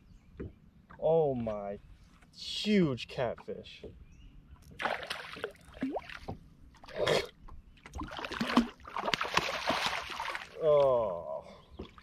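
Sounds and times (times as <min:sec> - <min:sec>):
fish thrashing in water: 0:07.9 - 0:10.6.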